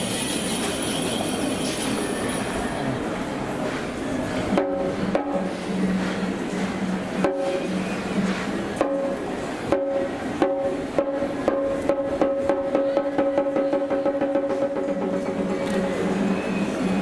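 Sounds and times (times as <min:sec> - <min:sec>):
taiko drums struck: 0:04.5 - 0:15.6.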